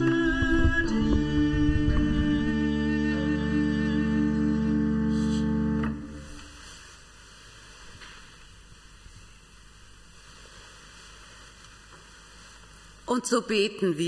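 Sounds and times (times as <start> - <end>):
church organ chord: 0.0 - 6.5.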